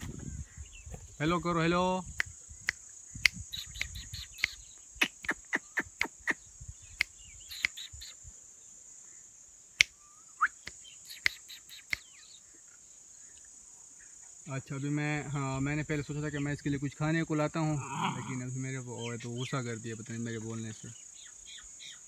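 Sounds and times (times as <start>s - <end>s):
high-pitched insect drone: 0.0s - 8.4s, 9.0s - 13.3s
sharp clicks: 2.2s - 6.4s, 7.0s - 8.0s.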